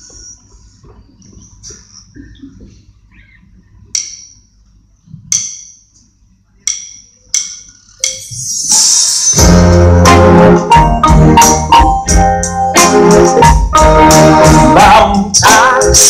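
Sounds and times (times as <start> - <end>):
percussion count-in clicks: 6.7 - 8.4
rock band playing: 9.4 - 16.0.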